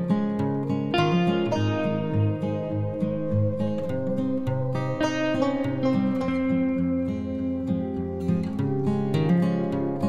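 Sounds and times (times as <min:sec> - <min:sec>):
plucked and strummed music: 0:00.0 - 0:10.0.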